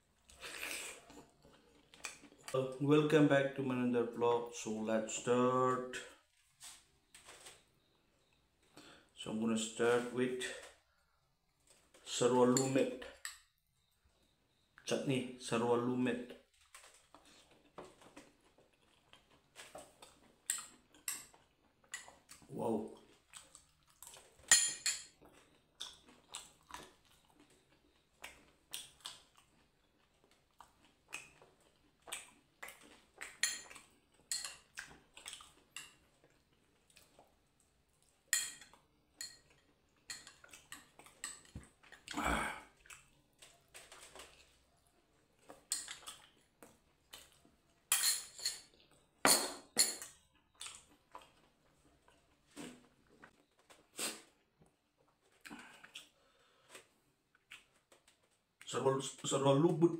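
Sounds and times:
metal spoon clinking on ceramic bowl: 0:24.5 - 0:25.1, 0:38.4 - 0:39.5.

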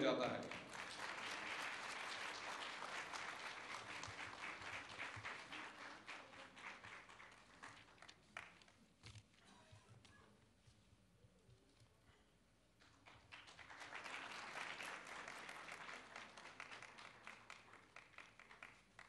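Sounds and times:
audience applauding: 0:00.4 - 0:08.6, 0:13.0 - 0:19.0.

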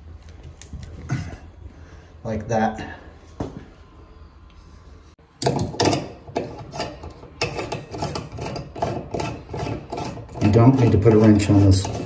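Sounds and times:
metal parts rubbing and scraping: 0:05.4 - 0:12.0.

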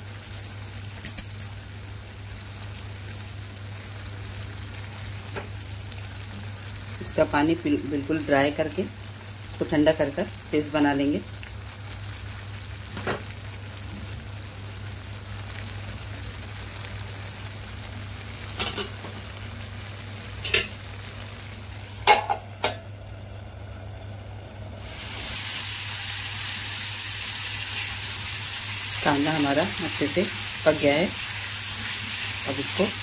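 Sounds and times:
onions sizzling in a pan: 0:01.5 - 0:33.0.

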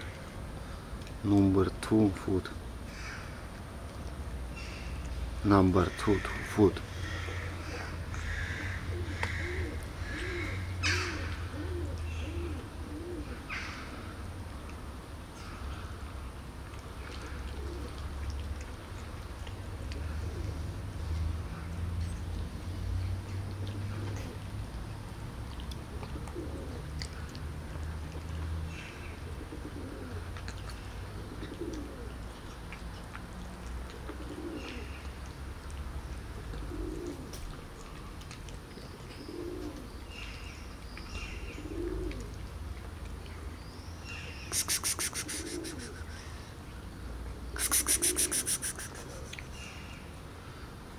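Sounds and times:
dove cooing: 0:07.0 - 0:14.1, 0:17.1 - 0:18.1, 0:23.7 - 0:24.5, 0:25.9 - 0:27.0, 0:29.2 - 0:32.2, 0:33.9 - 0:35.0, 0:36.4 - 0:37.5, 0:39.1 - 0:39.9, 0:41.4 - 0:42.4, 0:44.5 - 0:46.3, 0:47.5 - 0:49.4
cats chewing food: 0:15.9 - 0:41.2
small birds chirping: 0:36.0 - 0:42.3.

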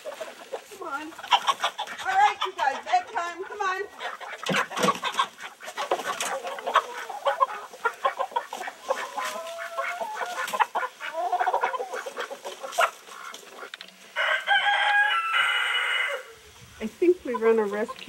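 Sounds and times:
chickens clucking and squawking: 0:00.0 - 0:18.0
rooster crowing: 0:14.2 - 0:16.4.

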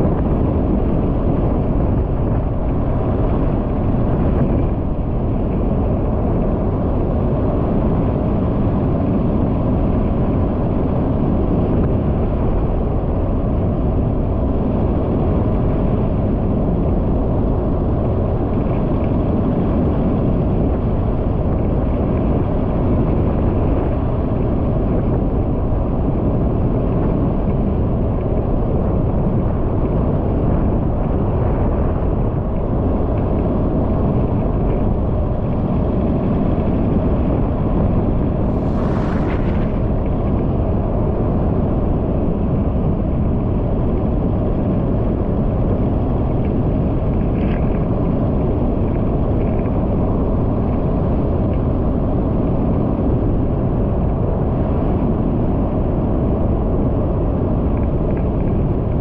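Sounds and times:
vehicle wind and road noise: 0:00.0 - 0:59.0
brief hiss: 0:38.3 - 0:40.4.

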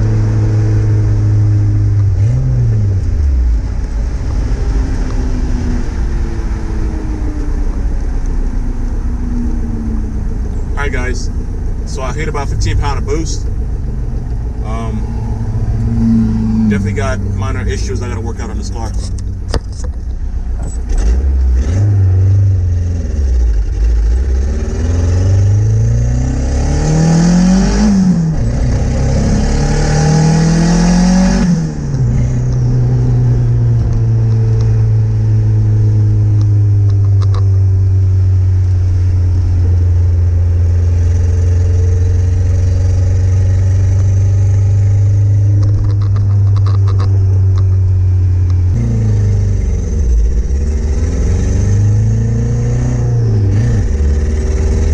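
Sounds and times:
turbocharged car engine revving: 0:00.0 - 0:19.9, 0:20.6 - 0:54.9
gear shift: 0:11.9 - 0:21.2, 0:36.4 - 0:37.8, 0:43.9 - 0:48.9.

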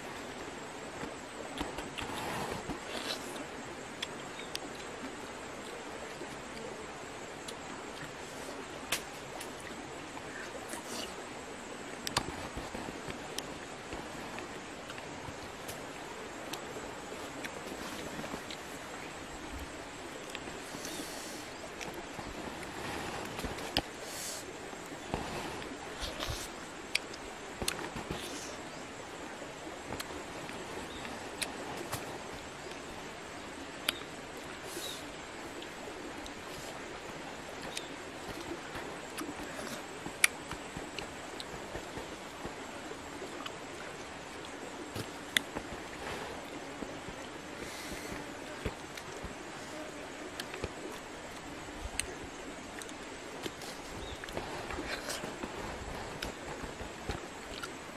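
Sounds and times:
outdoor background hiss: 0:00.0 - 0:57.9
eating clicks and smacks: 0:50.3 - 0:52.2, 0:57.1 - 0:57.8.

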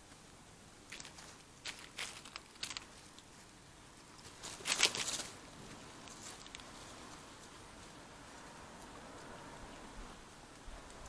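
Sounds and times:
dry leaves rustling: 0:00.8 - 0:11.0.

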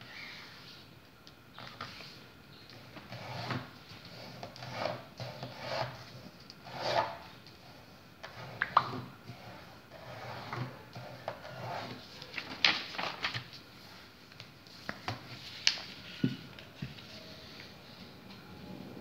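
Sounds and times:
paper rustling and crinkling: 0:11.9 - 0:17.7
sharp paper crackles: 0:12.1 - 0:13.6.

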